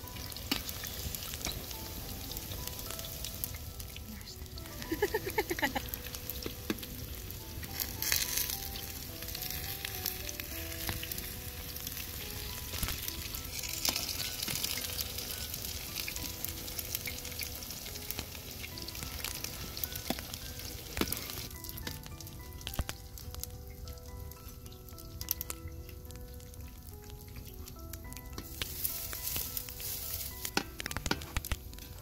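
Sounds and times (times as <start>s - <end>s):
patties sizzling in hot oil: 0.0s - 32.0s
metal spoon tapping pan: 30.4s - 31.6s.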